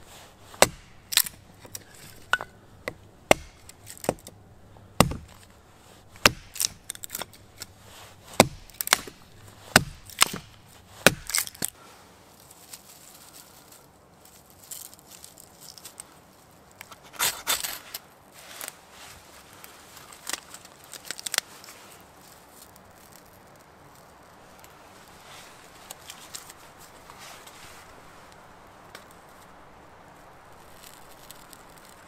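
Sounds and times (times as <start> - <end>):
fire steel scraping: 0.0 - 11.8, 16.7 - 28.3
hatchet chopping wood: 0.5 - 4.4, 5.0 - 5.5, 6.1 - 7.7, 8.3 - 11.7.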